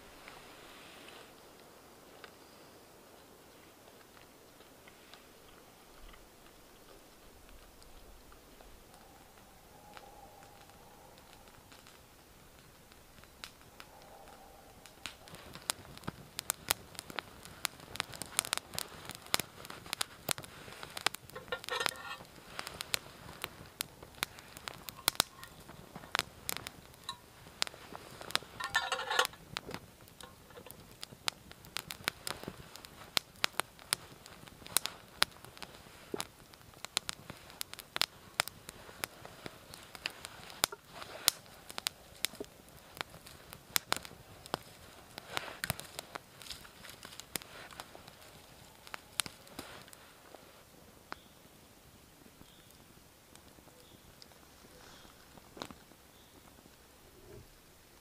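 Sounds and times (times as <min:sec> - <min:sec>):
campfire crackling and popping: 0:00.0 - 0:58.0.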